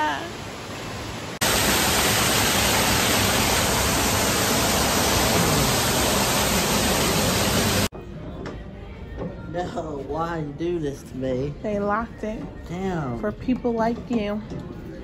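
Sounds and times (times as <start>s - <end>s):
waterfall splashing into pool: 0.0s - 7.9s.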